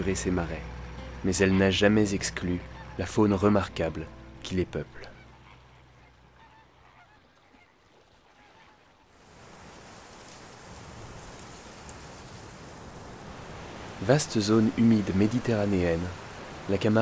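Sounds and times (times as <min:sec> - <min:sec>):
flamingos honking: 0:00.7 - 0:09.2
wind through grass: 0:05.2 - 0:17.0.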